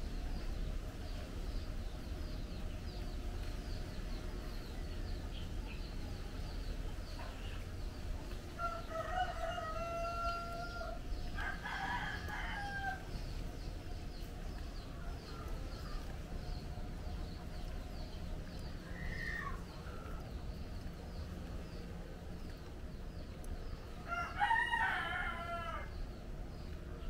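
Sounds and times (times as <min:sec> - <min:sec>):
low background rumble: 0:00.0 - 0:27.0
rooster crowing: 0:08.6 - 0:13.1, 0:24.0 - 0:25.9
faint high chirping: 0:14.6 - 0:20.8.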